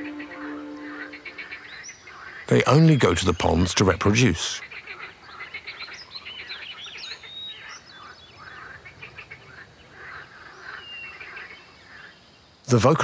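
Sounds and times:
birds chirping and whistling: 0.0 - 2.0.

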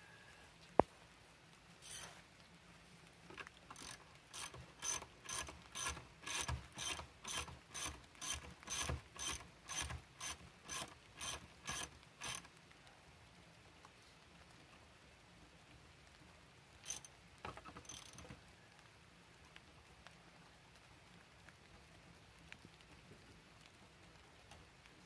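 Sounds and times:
hand ratchet clicking: 3.7 - 12.5, 16.9 - 17.1.

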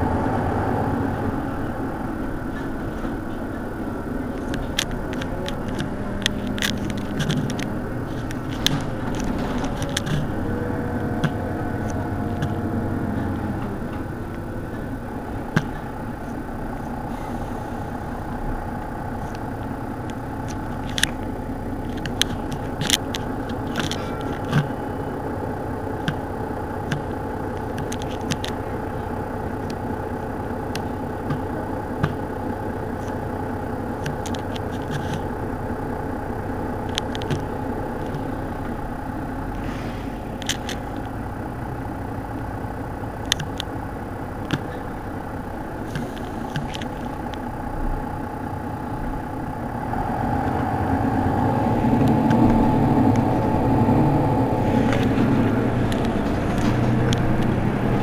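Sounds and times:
engine idling: 0.0 - 58.0
sharp clicks and ticks: 4.3 - 14.5, 18.8 - 29.9, 30.6 - 33.3, 33.9 - 35.4, 36.7 - 39.6, 40.3 - 47.6, 51.5 - 58.0.

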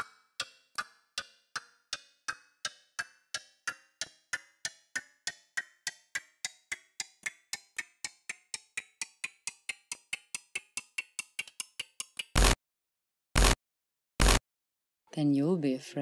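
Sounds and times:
clock ticking: 12.4 - 12.6, 14.2 - 14.4.

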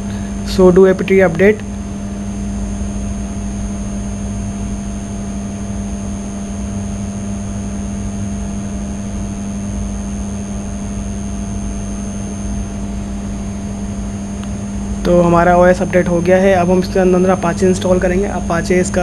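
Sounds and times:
faint high whines: 0.0 - 19.0
steady low hum: 0.0 - 19.0
rumbling background noise: 9.9 - 19.0.

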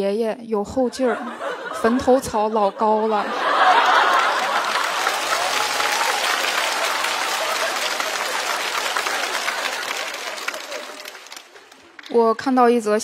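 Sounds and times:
audience laughing: 0.8 - 12.0
audience applauding: 3.4 - 12.1.

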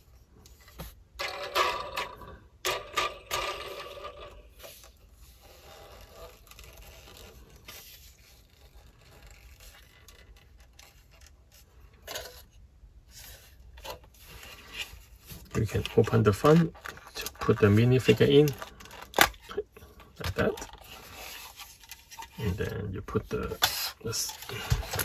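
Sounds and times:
plastic bricks scraping and rubbing: 0.1 - 25.0
plastic propeller clattering: 0.6 - 4.8, 23.4 - 25.0.

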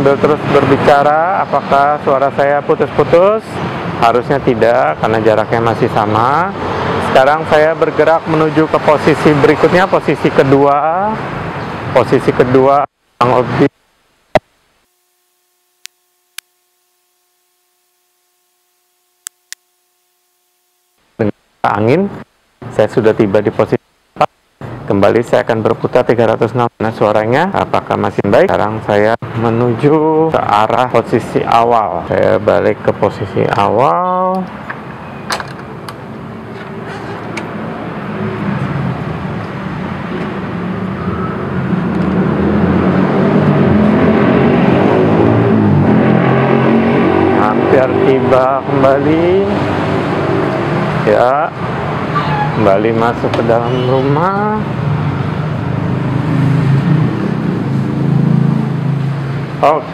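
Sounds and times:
outdoor street noise: 0.0 - 59.9
vehicle engine approaching: 36.1 - 53.7, 54.3 - 59.9.

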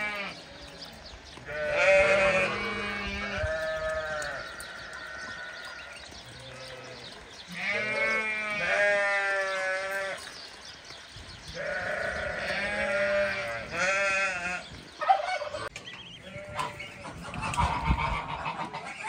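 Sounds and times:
sheep bleating: 0.0 - 0.4, 1.4 - 10.3, 11.5 - 14.7.

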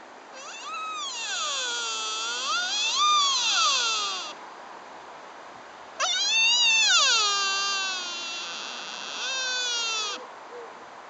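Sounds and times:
deer stag high cry: 0.4 - 4.4, 6.0 - 10.2.

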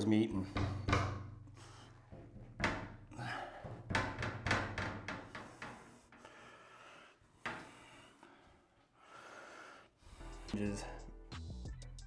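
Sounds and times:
knocks on glass door: 0.5 - 1.3, 2.2 - 5.5.

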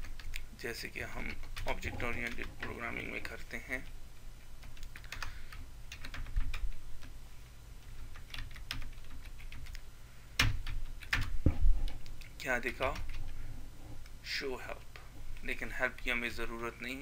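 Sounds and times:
computer keyboard typing: 0.0 - 3.9, 4.6 - 7.1, 8.1 - 9.8, 10.4 - 13.4.

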